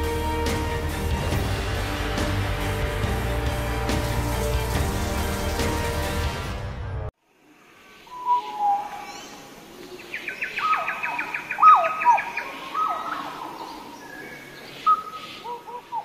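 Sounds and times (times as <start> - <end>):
bird chirps: 7.9 - 16.0
whistled bird notes dropping in pitch: 8.1 - 9.2.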